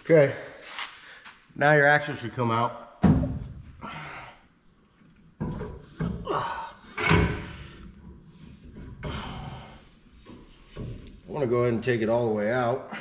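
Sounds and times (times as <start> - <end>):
metal clunks and scraping: 3.0 - 3.8, 5.0 - 12.5.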